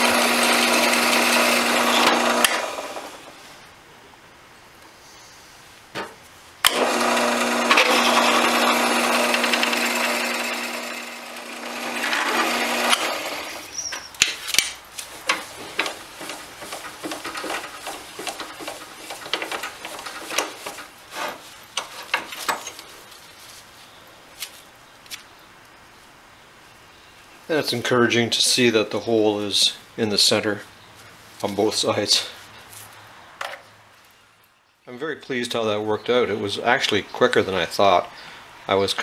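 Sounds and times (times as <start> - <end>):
reamer grinding metal: 0.0 - 3.3, 6.7 - 14.1, 15.2 - 22.8
drill press motor hum: 0.0 - 3.4, 6.6 - 13.7.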